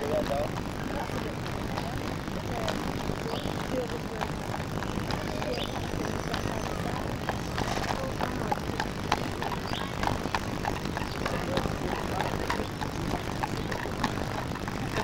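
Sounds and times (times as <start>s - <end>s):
horse hooves clopping on asphalt: 0.0s - 15.0s.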